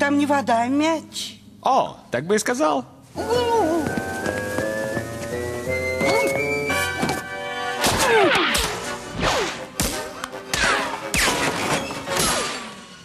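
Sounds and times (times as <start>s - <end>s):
stepped musical notes: 3.8s - 7.8s.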